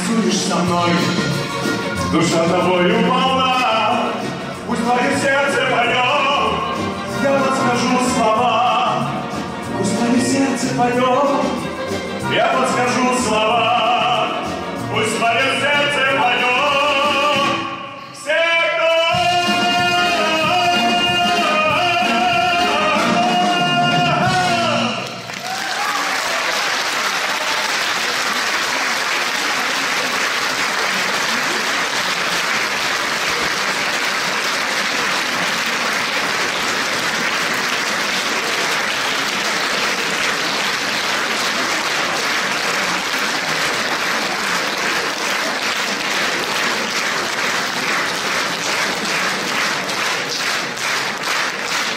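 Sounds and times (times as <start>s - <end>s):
audience applauding: 24.0s - 51.9s.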